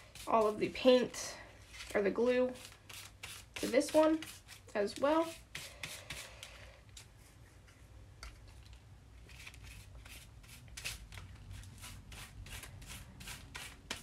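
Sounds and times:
brush spreading glue: 0.0 - 7.9.

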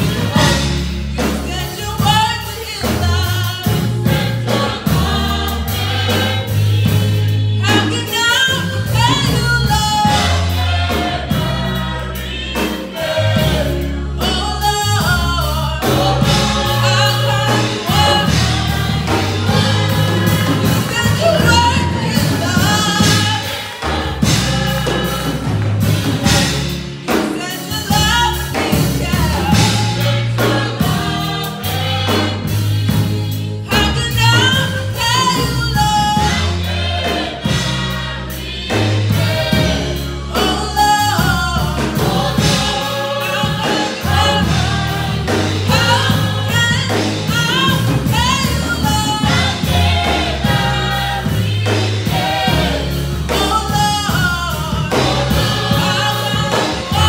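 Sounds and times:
low bass line: 0.0 - 27.2
gospel choir singing: 0.0 - 57.0
instrumental accompaniment: 0.0 - 57.0
woman singing lead: 19.4 - 24.8, 53.3 - 57.0.

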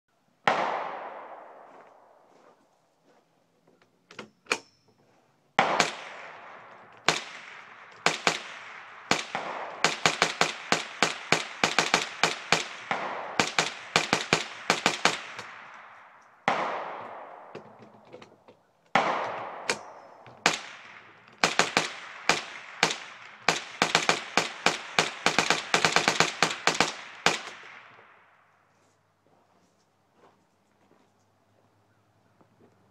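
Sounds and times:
rifle gunshots with echo: 0.4 - 2.3, 5.6 - 17.7, 18.9 - 28.5.

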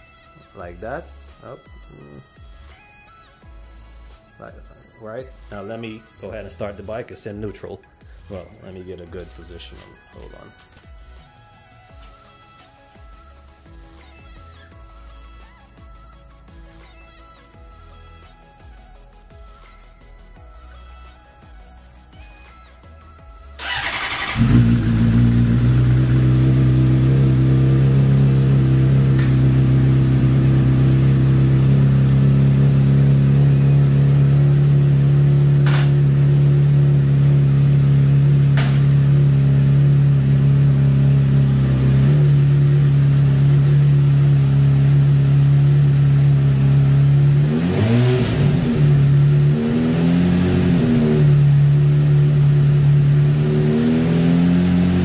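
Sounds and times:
motorcycle engine starting and idling: 23.6 - 55.0.

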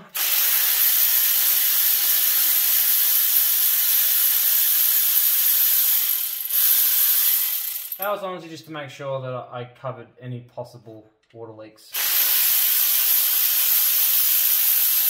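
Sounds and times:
powered ratchet whirring: 0.1 - 8.0, 12.0 - 15.0.

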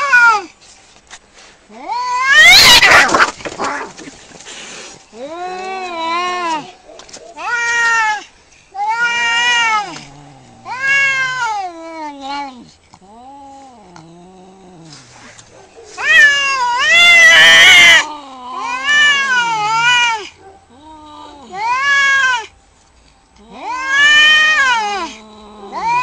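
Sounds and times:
cats yowling: 1.8 - 4.1, 7.3 - 14.2, 15.9 - 22.5, 23.4 - 26.0
cat growling: 1.8 - 4.2, 8.8 - 22.4, 23.4 - 26.0.

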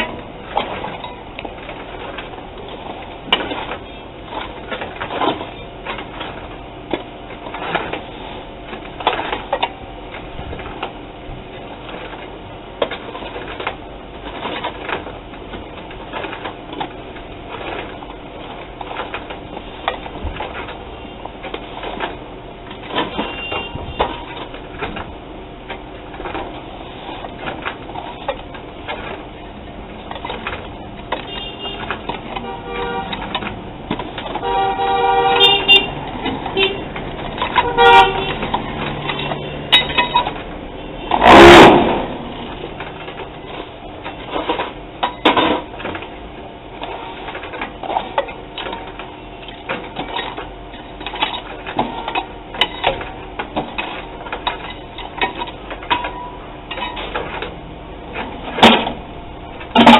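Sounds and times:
metal clanks and knocks: 21.4 - 46.1, 47.2 - 59.9.

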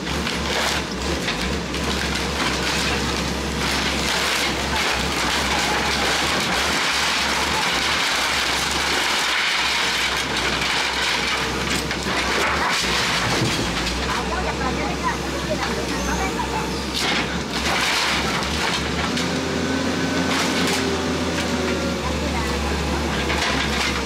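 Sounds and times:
roof tiles and bricks crashing down: 0.0 - 14.6, 17.0 - 19.4, 23.0 - 24.0
hydraulic crusher breaking through wall: 0.0 - 14.9, 16.8 - 24.0
diesel engine humming: 0.0 - 24.0.

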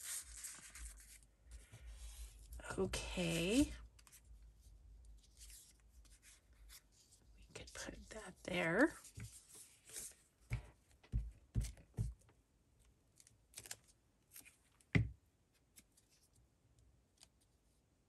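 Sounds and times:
paper crinkling and rustling: 0.0 - 4.3, 13.2 - 14.7
soft taps and thuds on desk: 10.5 - 12.2, 15.0 - 15.2.

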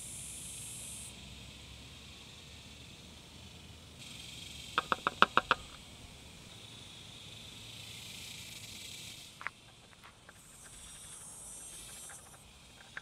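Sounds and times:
steady high hiss: 0.0 - 13.0
sharp clicks: 4.8 - 5.8.

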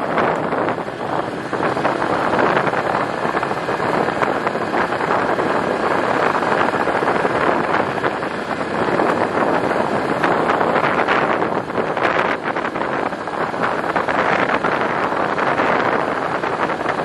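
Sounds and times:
gravel crunching under wheels: 0.0 - 17.0
vehicle engine and tyre noise: 0.0 - 17.0
wind buffeting microphone: 0.0 - 17.0.

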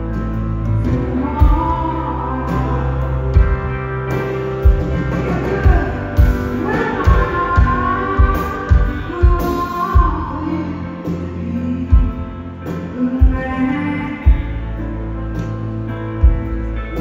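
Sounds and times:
electric guitar chords: 0.0 - 17.0
live rock band playing: 0.0 - 17.0
woman singing: 0.8 - 3.7, 4.9 - 15.1.

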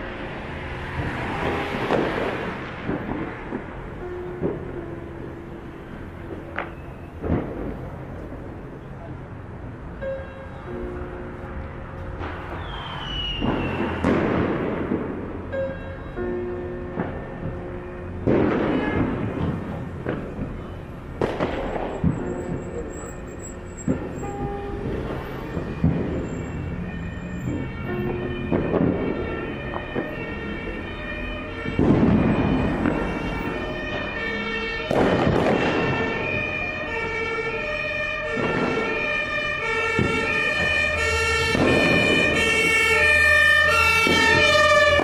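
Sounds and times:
firecrackers banging: 0.0 - 9.2, 10.0 - 45.0
two-tone siren: 10.0 - 14.4, 15.5 - 20.8, 21.8 - 45.0.

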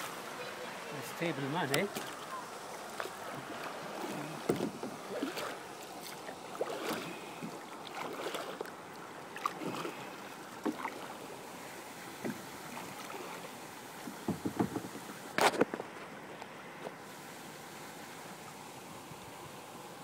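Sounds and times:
paddle splashes and drips: 0.0 - 15.6
water washing against hull: 0.0 - 15.6.

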